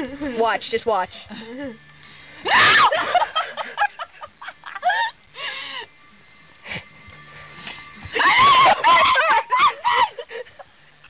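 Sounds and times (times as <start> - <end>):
high-pitched squealing laughter: 2.4 - 3.6, 8.1 - 10.6.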